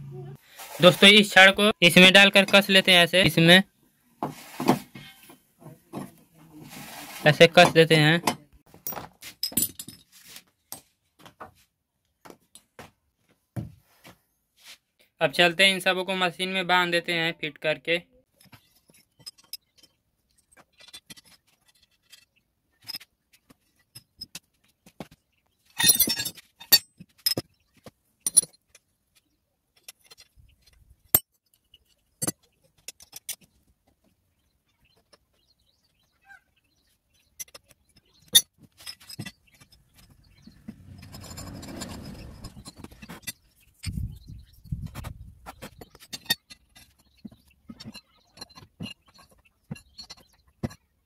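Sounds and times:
metallic clinks and taps: 28.2 - 28.8
rough low scraping: 39.8 - 43.2.

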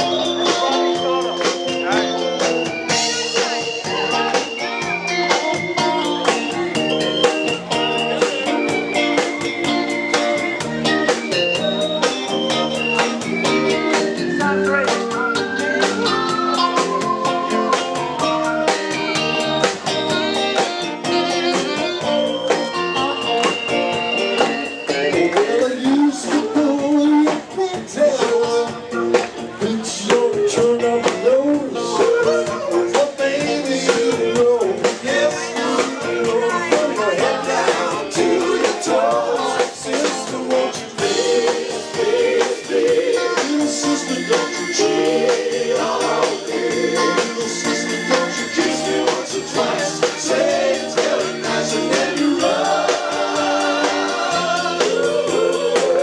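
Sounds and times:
drums and cymbals: 0.0 - 56.0
electric bass guitar: 0.0 - 56.0
man singing into a microphone: 24.9 - 41.2, 43.2 - 50.3.

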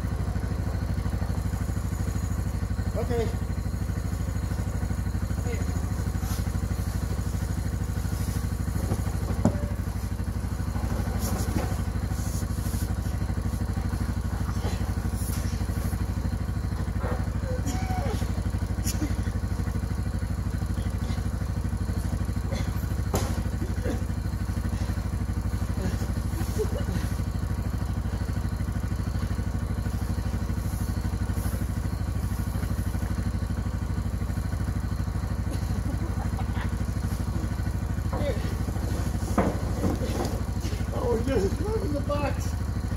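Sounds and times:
vehicle engine idling: 0.0 - 42.9.

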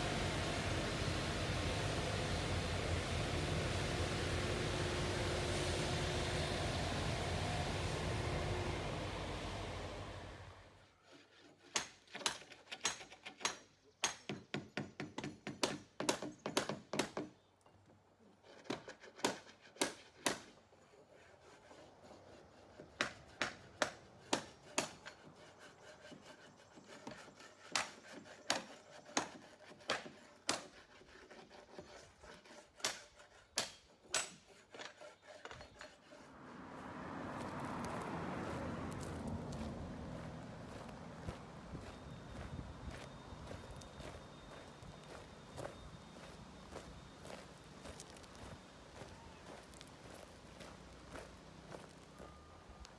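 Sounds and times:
hammer blows on wooden forms: 11.6 - 17.4, 22.8 - 36.1.

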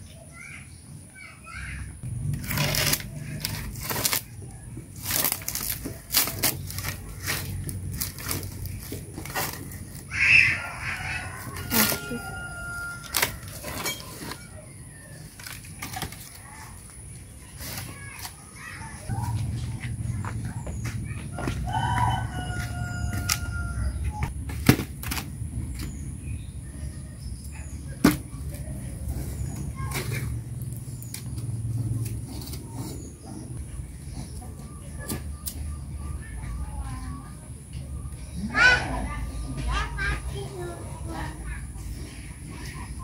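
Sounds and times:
dry firewood crackling and scraping: 2.1 - 27.0, 28.0 - 34.4
steady low rumble: 19.1 - 27.5.

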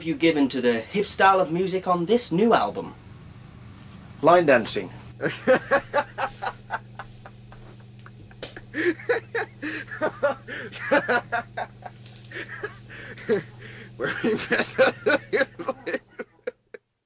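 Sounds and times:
low electrical hum: 0.0 - 17.0
person laughing: 5.2 - 16.8.

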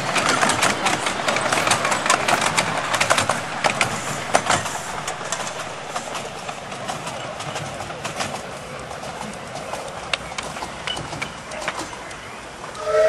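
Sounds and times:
train wheels clattering over track: 0.0 - 13.0.

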